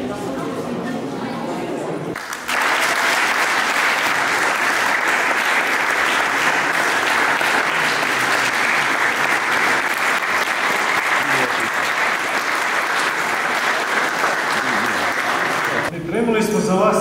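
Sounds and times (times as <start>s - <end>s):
audience applauding: 2.2s - 15.9s.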